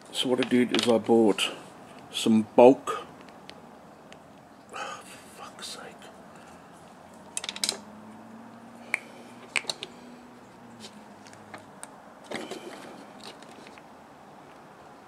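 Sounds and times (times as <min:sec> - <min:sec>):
rustle: 0:00.1 - 0:14.8
plastic bottle and cap clicking: 0:07.3 - 0:07.9, 0:08.9 - 0:09.9.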